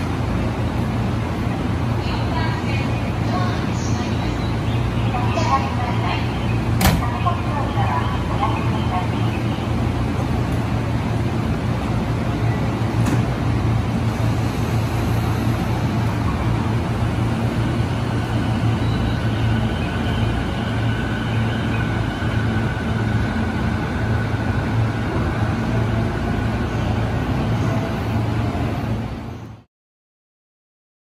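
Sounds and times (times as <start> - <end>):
train wheels and motors rumbling: 0.0 - 29.6.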